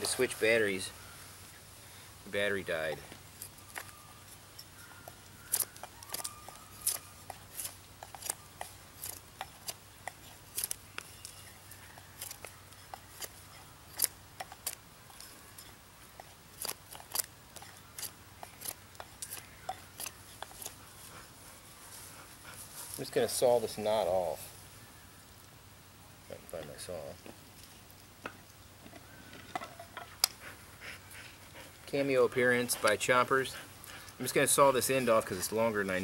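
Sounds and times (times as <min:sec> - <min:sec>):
knife whittling wood: 0:02.7 - 0:20.8.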